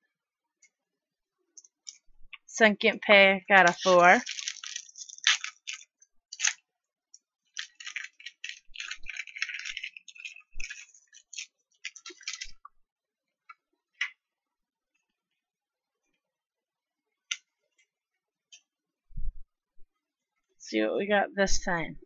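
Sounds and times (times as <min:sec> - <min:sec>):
foil wrapper crinkling and tearing: 0:03.5 - 0:06.6, 0:07.5 - 0:12.6.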